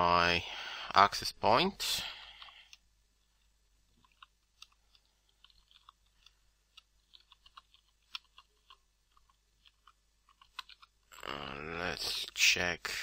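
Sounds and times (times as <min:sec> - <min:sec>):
faint keyboard typing: 0:02.3 - 0:11.3.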